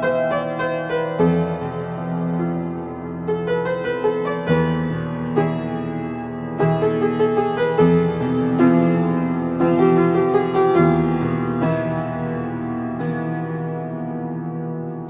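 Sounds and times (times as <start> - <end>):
slow solo piano chords: 0.0 - 15.0.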